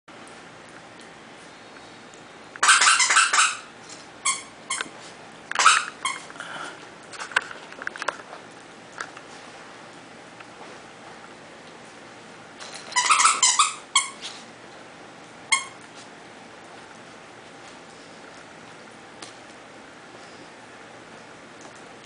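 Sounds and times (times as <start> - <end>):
small dogs yipping: 2.6 - 3.7, 5.6 - 6.3, 13.0 - 14.3.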